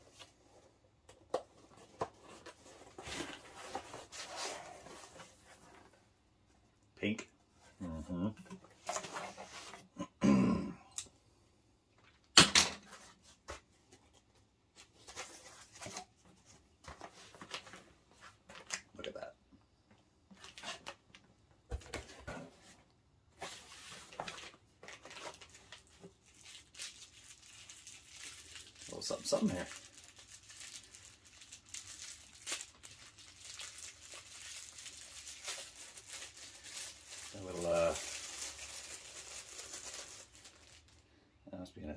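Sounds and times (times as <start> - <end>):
cardboard box and foam rustling: 1.4 - 6.1
packing wrap crinkling: 23.5 - 41.0.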